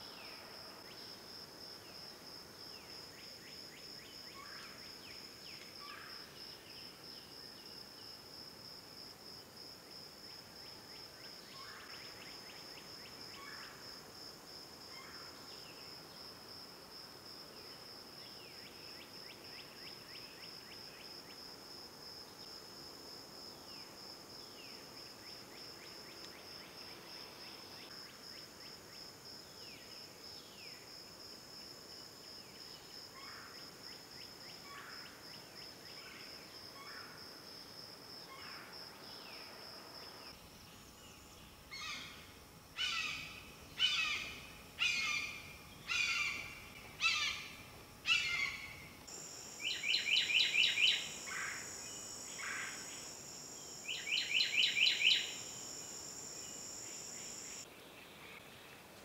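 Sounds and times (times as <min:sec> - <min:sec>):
high insect trill: 0:38.1 - 0:57.7.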